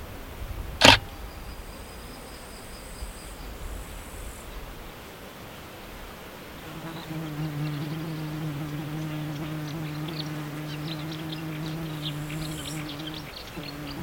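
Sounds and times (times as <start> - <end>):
insect buzzing: 6.6 - 14.0
birds chattering: 6.8 - 14.0.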